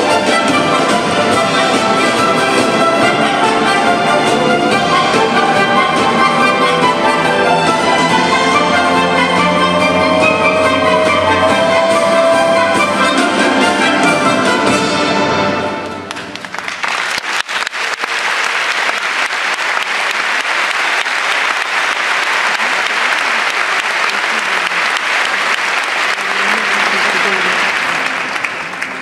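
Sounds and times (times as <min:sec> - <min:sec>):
audience applause: 0:15.9 - 0:29.0.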